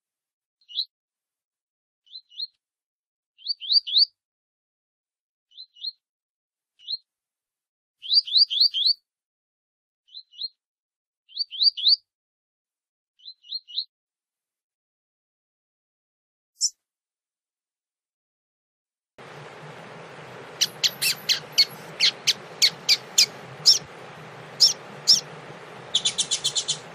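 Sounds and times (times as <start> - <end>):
seedeater song: 19.2 - 26.9.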